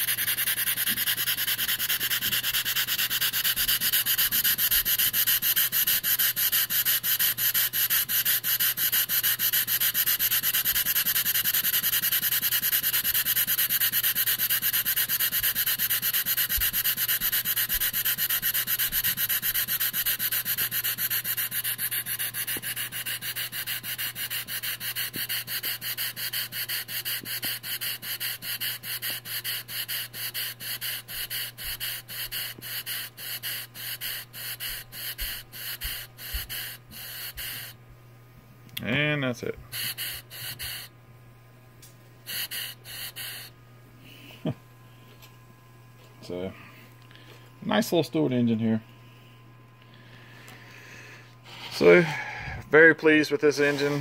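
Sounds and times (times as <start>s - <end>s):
model steam engine chuffing: 0.0s - 37.7s.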